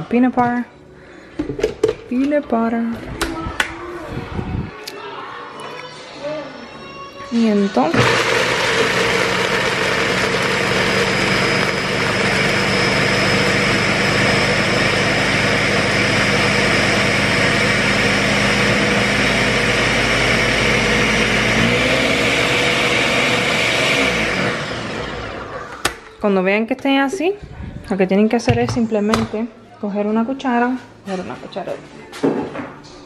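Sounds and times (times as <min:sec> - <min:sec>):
blender grinding peanuts: 0:07.9 - 0:25.6
blender motor hum: 0:07.9 - 0:25.6.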